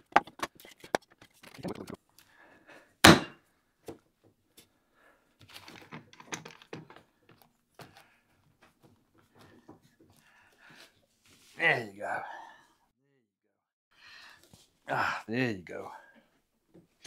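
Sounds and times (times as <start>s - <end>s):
loud wooden thunk: 3.0s - 3.4s.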